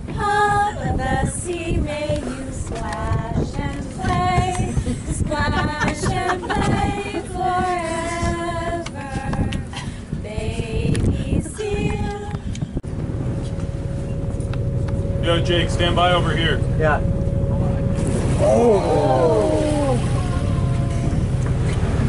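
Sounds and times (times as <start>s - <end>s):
group singing unaccompanied: 0.1s - 12.4s
low rumble: 0.7s - 22.0s.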